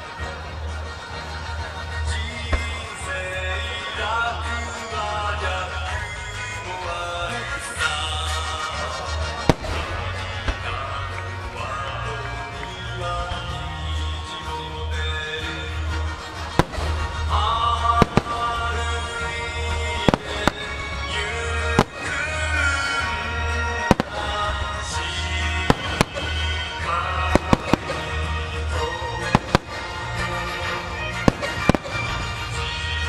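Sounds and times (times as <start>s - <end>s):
music playing: 0.0s - 33.0s
firework shells bursting: 16.6s - 17.3s, 21.7s - 22.2s, 25.7s - 26.6s.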